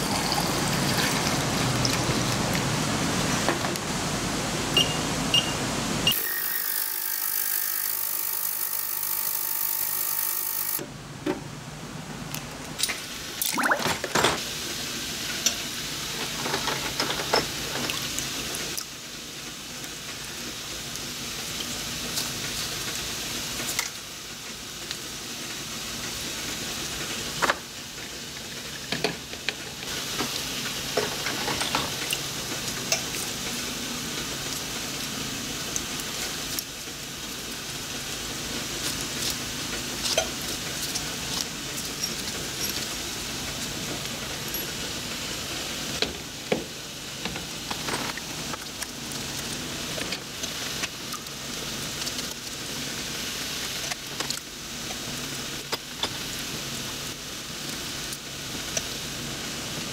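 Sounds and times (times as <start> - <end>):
water splashing: 13.4 - 14.1.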